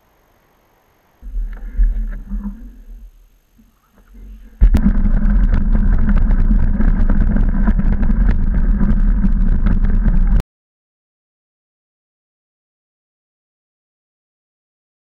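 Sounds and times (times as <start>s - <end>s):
wind buffeting microphone: 4.1s - 10.4s
bike rattling and clicking: 4.6s - 10.4s.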